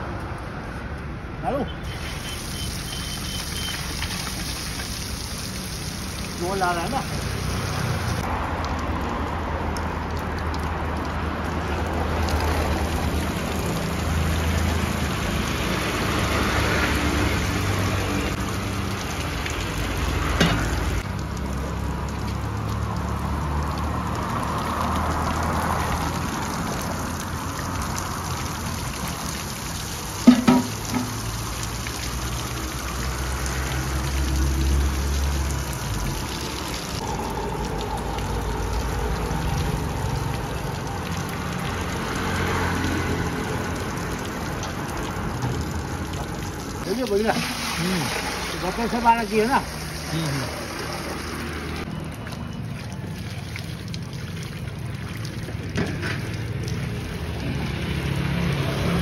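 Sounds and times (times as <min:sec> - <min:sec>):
water draining through colander: 0:30.0 - 0:32.2, 0:46.9 - 0:51.2
knocks: 0:30.3 - 0:31.1.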